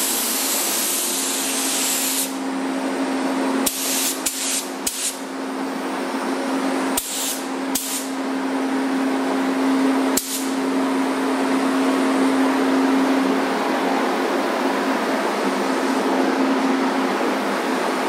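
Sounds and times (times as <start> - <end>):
paint spray gun hissing: 0.0 - 2.4, 3.6 - 5.2, 7.0 - 8.1, 10.2 - 10.5
ventilation hum: 0.0 - 18.0.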